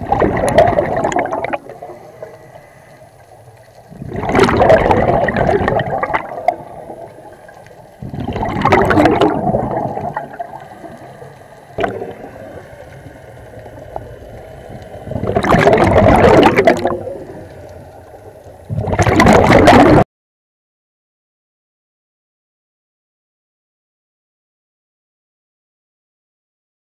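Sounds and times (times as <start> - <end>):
underwater exhaust bubbles: 0.0 - 20.0.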